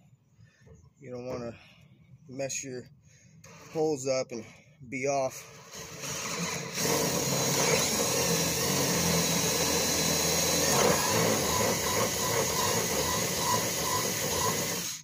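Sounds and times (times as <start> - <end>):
cordless drill boring into wood: 5.3 - 15.0.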